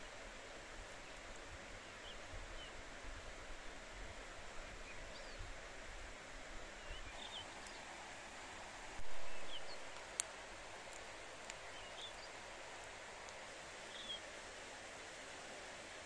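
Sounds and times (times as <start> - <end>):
river rushing: 0.0 - 16.0
small birds chirping: 0.9 - 2.8, 4.5 - 5.6, 6.6 - 8.1, 9.0 - 14.3.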